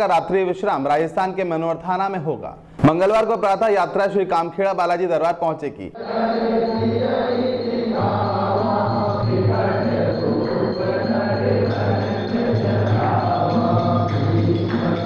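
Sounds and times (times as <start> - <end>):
voices singing: 5.9 - 15.0
jingling percussion: 6.0 - 15.0.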